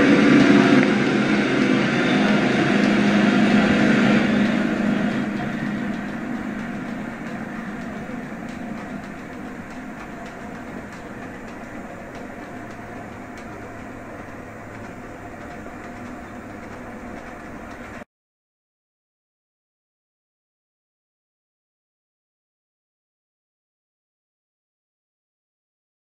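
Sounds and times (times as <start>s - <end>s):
model train rolling on track: 0.0s - 18.0s
wheels clicking over rails: 0.0s - 18.0s.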